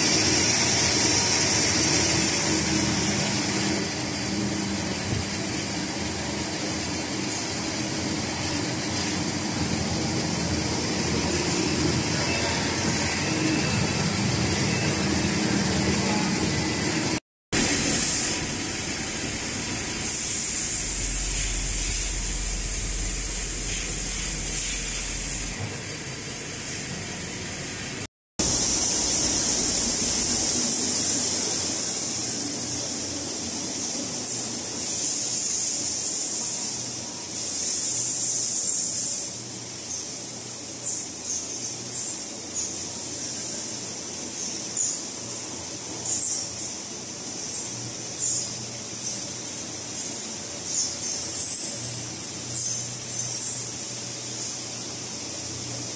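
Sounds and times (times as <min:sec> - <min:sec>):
lathes machining hiss: 0:00.0 - 0:55.9.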